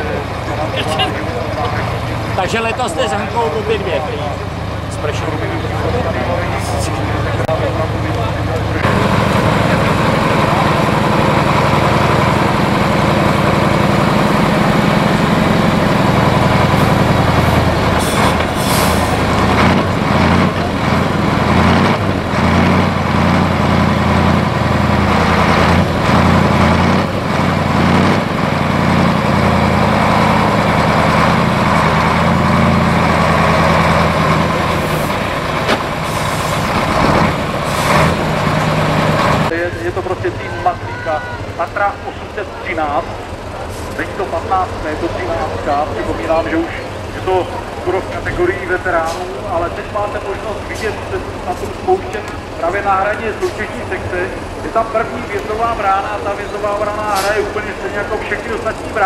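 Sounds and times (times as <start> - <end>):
truck engine under load: 0.0 - 59.0
chassis knocks and clatter: 35.3 - 39.5.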